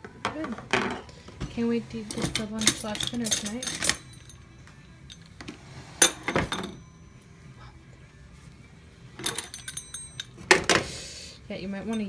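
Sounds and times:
metal utensil clinking: 2.0 - 6.8, 9.2 - 10.7, 11.8 - 12.0.

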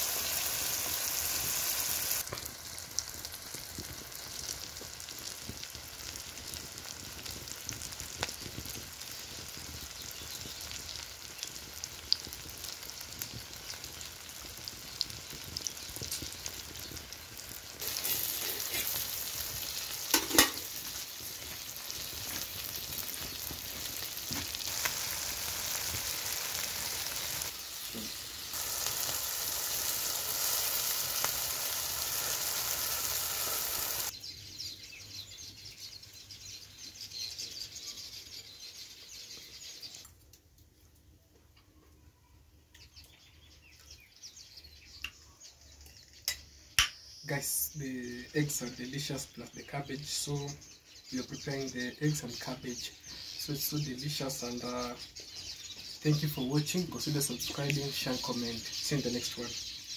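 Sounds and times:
omelette sizzling in hot oil: 0.0 - 34.3.

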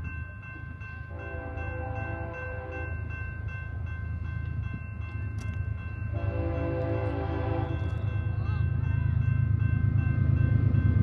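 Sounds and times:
railroad crossing bell ringing: 0.0 - 11.0
locomotive air horn: 1.1 - 2.9, 6.1 - 8.0.

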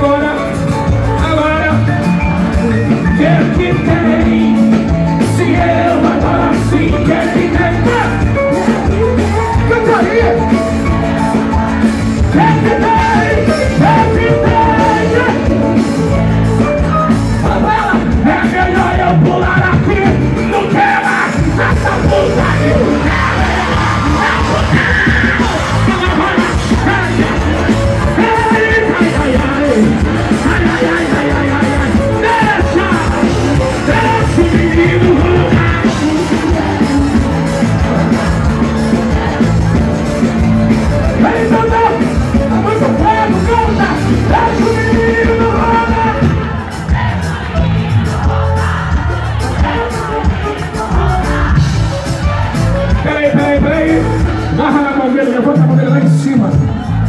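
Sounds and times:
man singing into a microphone: 0.0 - 10.7, 12.2 - 15.8, 17.3 - 37.3, 41.2 - 46.6
band playing worship music: 0.0 - 57.0.

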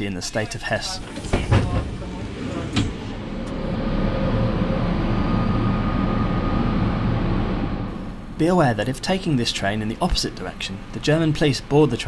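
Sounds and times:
train humming: 0.9 - 11.0
faint high whine: 3.4 - 9.4.

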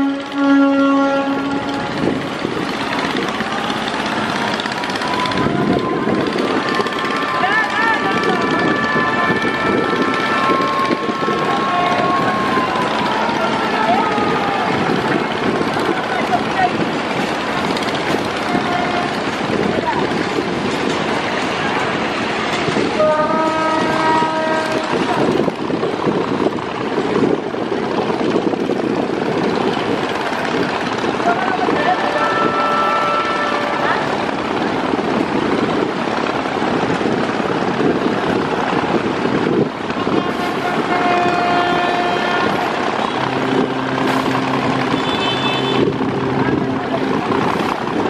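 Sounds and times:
boat horn blast: 0.0 - 16.6, 18.1 - 19.6, 22.9 - 25.4, 31.3 - 34.3, 39.9 - 48.0
rushing bow wash and engines: 0.0 - 48.0.

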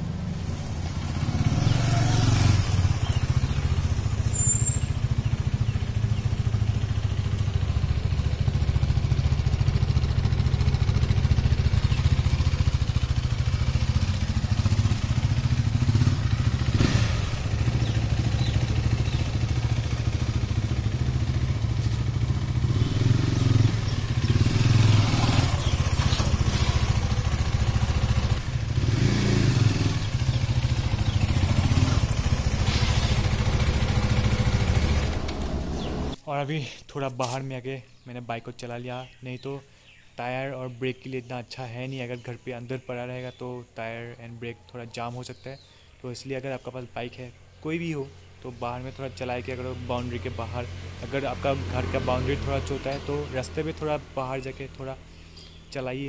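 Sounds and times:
motorcycle engine running: 0.0 - 36.2.

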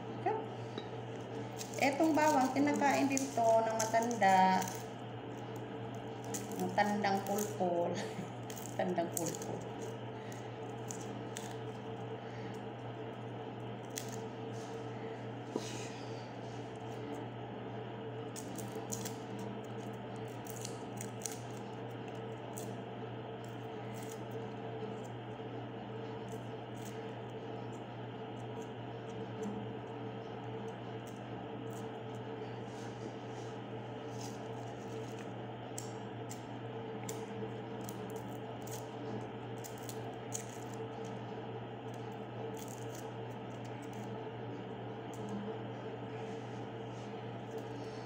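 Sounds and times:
steady low hum: 0.0 - 48.0
knife scratching garlic skins: 1.4 - 11.7, 18.4 - 22.8, 34.0 - 41.2, 41.8 - 44.2.

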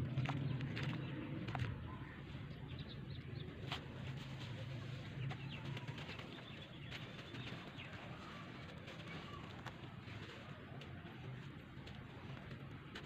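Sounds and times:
small crackles and clicks: 5.2 - 13.0.

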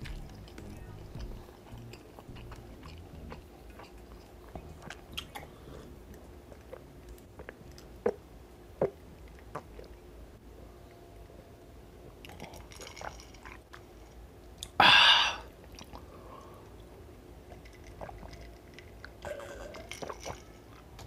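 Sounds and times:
man gulping water: 0.0 - 5.6.

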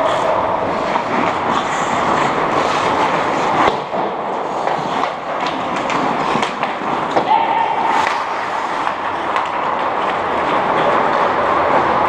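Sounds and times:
skate blades scraping ice: 0.0 - 12.0
stick hitting puck: 0.7 - 11.3
arena crowd din: 7.0 - 12.0.

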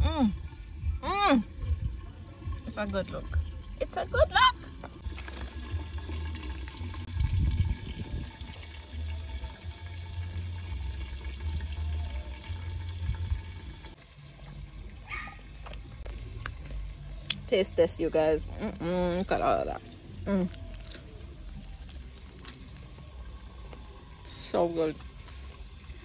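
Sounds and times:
wind buffeting microphone: 7.1 - 8.6.

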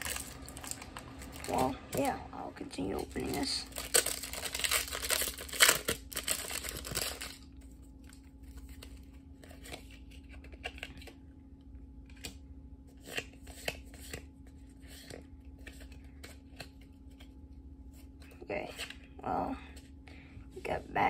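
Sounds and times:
foil wrapper crinkling and tearing: 0.0 - 2.1, 2.8 - 11.1
trading cards flipping: 2.8 - 11.2, 12.1 - 17.4.

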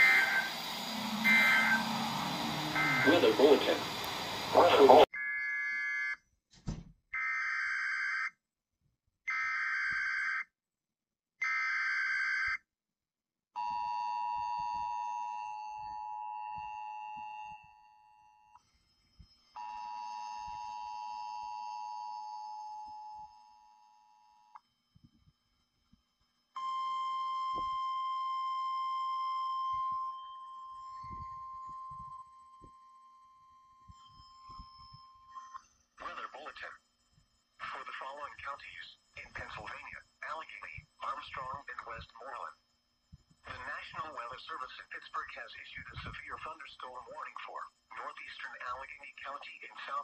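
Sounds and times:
screeching digital data bursts: 0.0 - 5.1
steady single-pitch alert tone: 0.0 - 5.1
two-tone attention signal: 0.0 - 5.1.

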